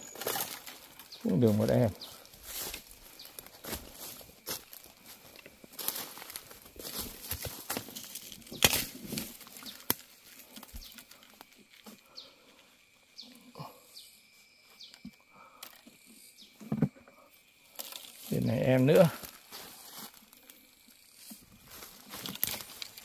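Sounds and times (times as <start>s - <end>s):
leaves rustling in undergrowth: 0.0s - 11.8s, 17.7s - 23.0s.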